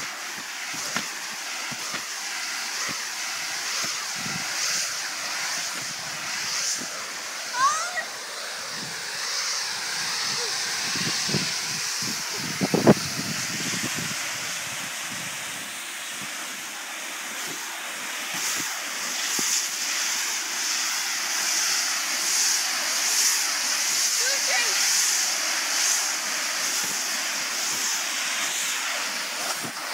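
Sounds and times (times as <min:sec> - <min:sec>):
sprinkler spraying water hiss: 0:00.0 - 0:29.9.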